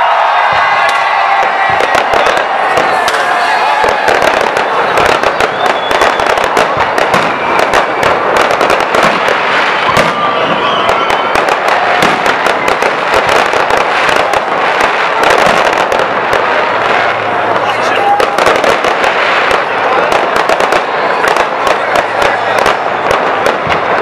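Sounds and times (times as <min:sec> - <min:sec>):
fireworks crackling and banging: 0:00.0 - 0:24.0.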